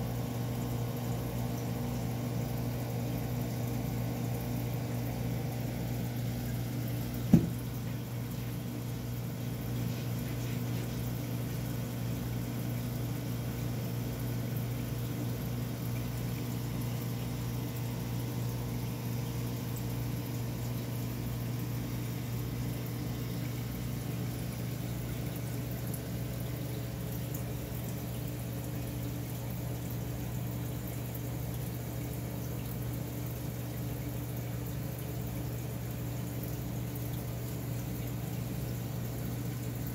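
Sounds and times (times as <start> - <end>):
aquarium pumps humming: 0.0 - 39.9
sharp knock: 7.3 - 7.6.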